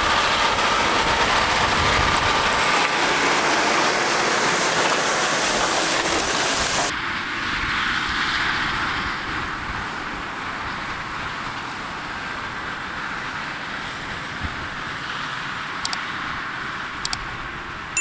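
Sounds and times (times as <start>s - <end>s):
heavy farm machinery running: 0.0s - 6.9s.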